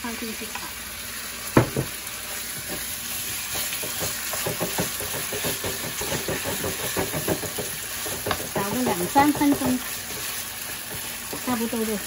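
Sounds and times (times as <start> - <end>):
beef sizzling in hot oil: 0.0 - 12.0
wooden spatula scraping: 2.5 - 12.0.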